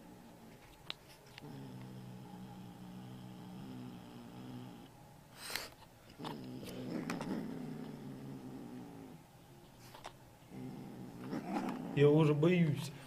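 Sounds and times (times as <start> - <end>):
cat growling: 1.3 - 4.9, 6.2 - 9.2, 10.5 - 12.1.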